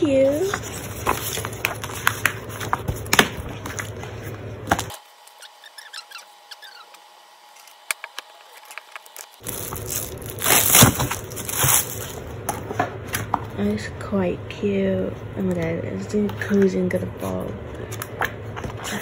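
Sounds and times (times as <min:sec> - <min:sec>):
plastic crinkling: 0:07.6 - 0:12.3.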